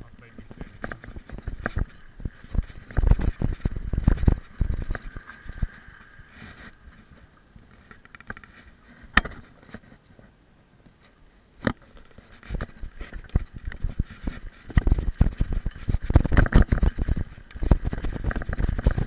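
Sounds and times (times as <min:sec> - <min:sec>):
bike rattling over dirt road: 0:00.0 - 0:07.1, 0:11.6 - 0:19.0.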